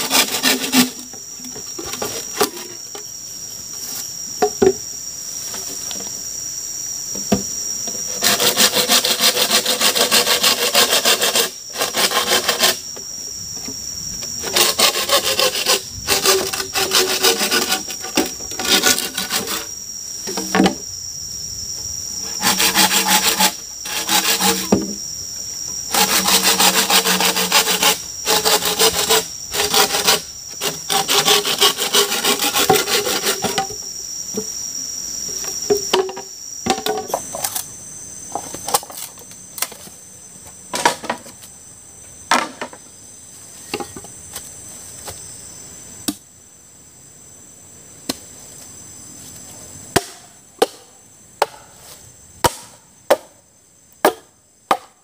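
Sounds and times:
hand saw cutting wood: 0.0s - 1.1s, 8.1s - 12.8s, 14.4s - 19.7s, 22.2s - 25.0s, 25.9s - 33.7s
high insect drone: 0.0s - 55.0s.

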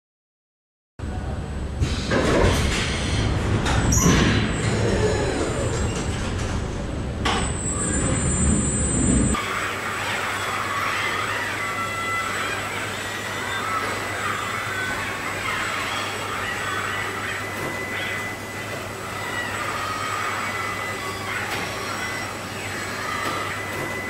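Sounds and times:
mechanical din of machinery: 1.8s - 9.9s.

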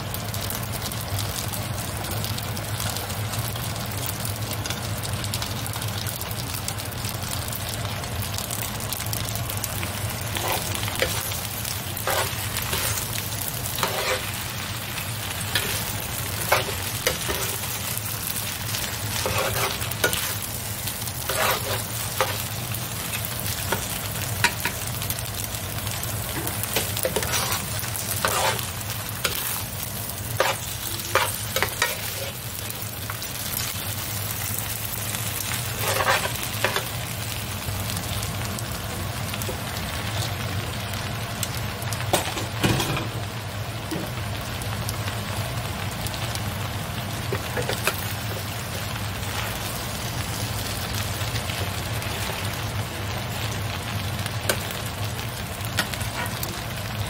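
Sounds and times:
food sizzling in a pan: 0.0s - 57.0s
metal spoon scraping a pan: 10.3s - 11.4s, 12.0s - 14.6s, 15.3s - 17.8s, 18.6s - 20.4s, 21.2s - 22.4s, 26.3s - 29.6s, 30.3s - 32.4s, 35.7s - 36.9s.

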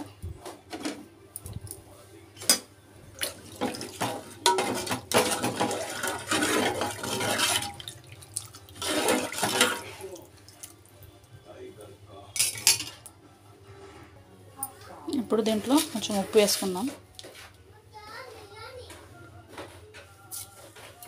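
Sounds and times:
liquid sloshing in pot: 3.1s - 11.0s
ladle clinking against pot: 3.6s - 7.9s, 8.8s - 10.0s.

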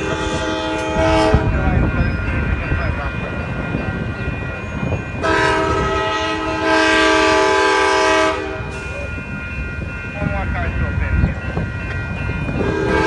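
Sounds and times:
train horn blowing: 0.0s - 1.8s, 5.2s - 8.9s, 12.6s - 13.0s.

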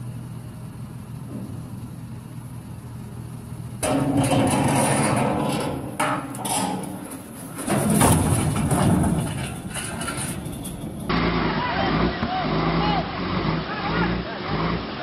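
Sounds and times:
vehicle engine running: 0.0s - 4.2s, 7.2s - 15.0s
loud crunching and banging: 3.8s - 11.2s.

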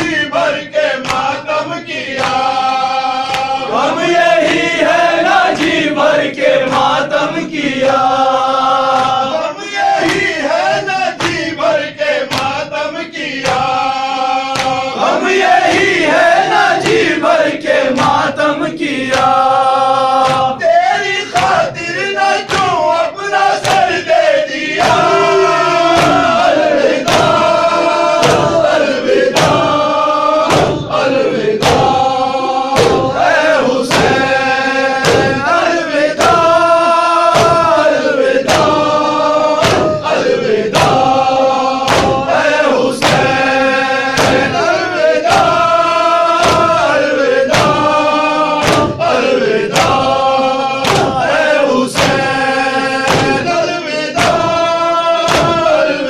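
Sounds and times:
men chanting a lament: 0.0s - 56.0s
chest beating: 23.6s - 48.0s, 48.6s - 56.0s.

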